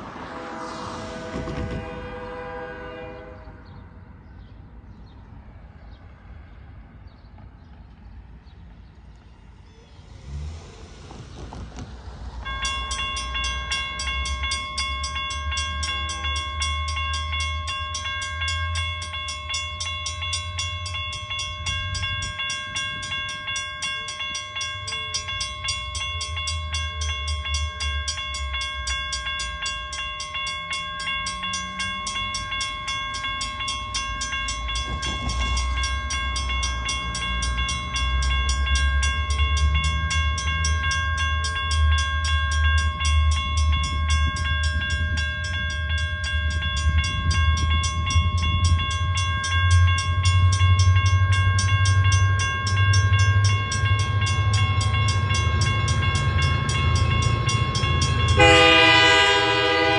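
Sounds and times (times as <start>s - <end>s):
railroad crossing bell ringing: 0.0s - 6.5s, 12.0s - 59.9s
diesel train rumble: 0.0s - 59.9s.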